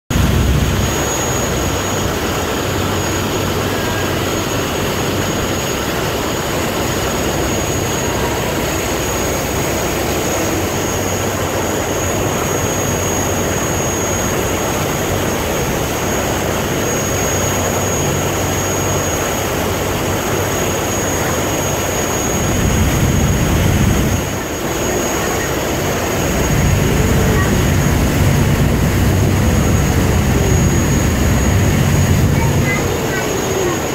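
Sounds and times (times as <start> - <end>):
boat engine running: 0.1 - 33.9
churning wake rushing: 0.1 - 33.9
thin high whine: 21.2 - 33.9.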